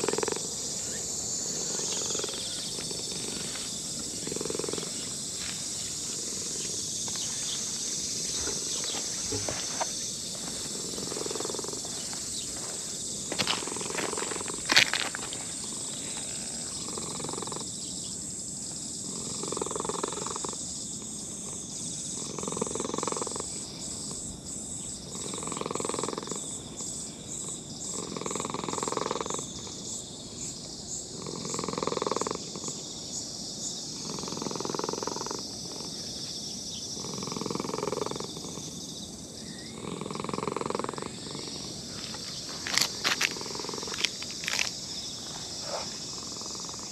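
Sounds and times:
cat purring: 0:00.0 - 0:00.5, 0:01.5 - 0:03.5, 0:04.1 - 0:05.2, 0:10.7 - 0:11.8, 0:19.1 - 0:20.6, 0:34.0 - 0:35.9.

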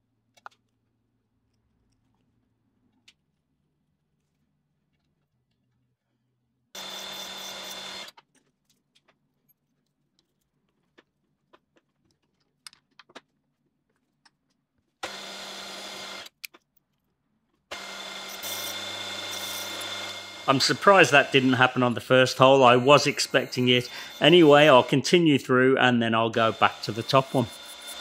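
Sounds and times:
drilling machine spindle running: 0:06.8 - 0:08.1, 0:15.0 - 0:16.3, 0:17.7 - 0:25.5, 0:26.2 - 0:28.0.

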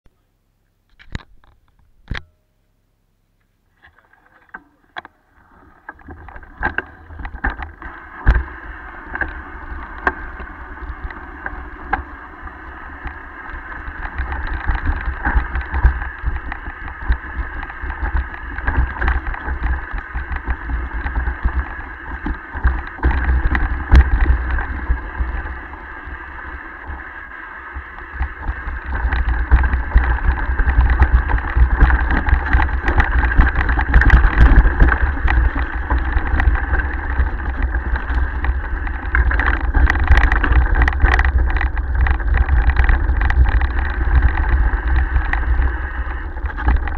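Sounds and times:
clicks: 0:00.6 - 0:02.4
bike rattling: 0:05.4 - 0:46.9
tyre and wind noise: 0:05.5 - 0:46.9.

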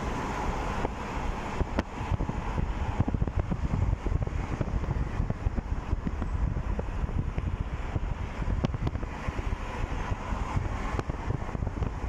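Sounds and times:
highway traffic noise: 0:00.0 - 0:12.0
wind buffeting microphone: 0:00.0 - 0:12.0.

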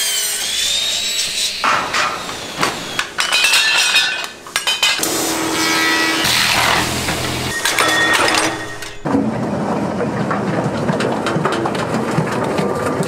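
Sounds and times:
workshop machine humming: 0:00.0 - 0:09.1
metal pieces clinking: 0:03.0 - 0:05.1, 0:07.5 - 0:09.1.

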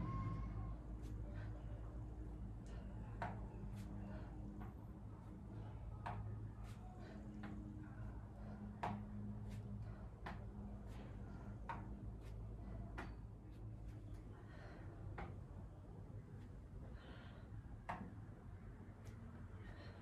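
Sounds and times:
steady low hum: 0:00.0 - 0:20.0
taps on exercise mat: 0:08.8 - 0:09.2, 0:17.8 - 0:18.2.

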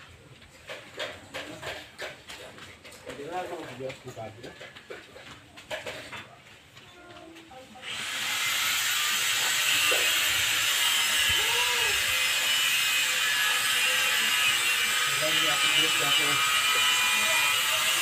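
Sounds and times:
power tool whining with harsh hiss: 0:07.8 - 0:18.0.

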